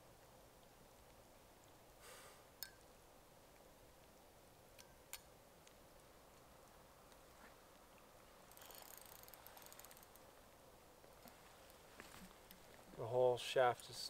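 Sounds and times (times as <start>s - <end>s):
fishing reel clicking: 8.5s - 10.2s.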